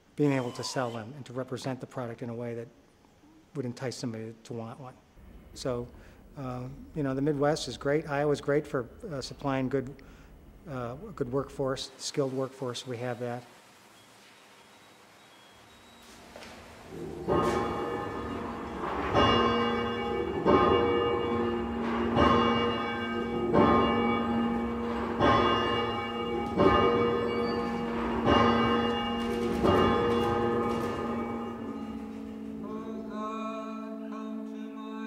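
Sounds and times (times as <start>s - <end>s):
church bell tolling: 16.1s - 34.4s.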